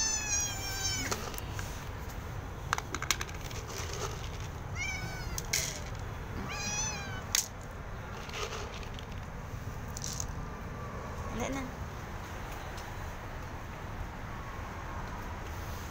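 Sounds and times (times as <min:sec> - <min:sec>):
cat meowing: 0:00.0 - 0:01.2, 0:04.7 - 0:05.7, 0:06.4 - 0:07.3.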